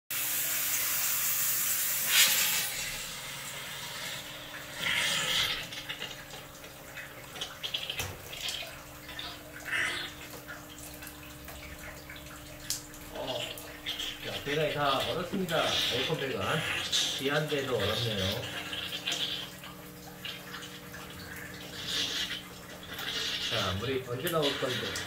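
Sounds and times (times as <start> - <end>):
steam hose hissing: 0.2 - 3.1.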